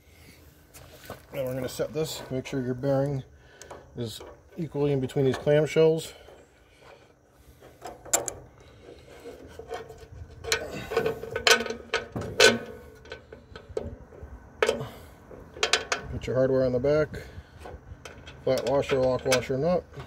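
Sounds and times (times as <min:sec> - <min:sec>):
metal parts clicking and clinking: 0:09.3 - 0:14.0, 0:14.6 - 0:16.2, 0:18.0 - 0:20.0.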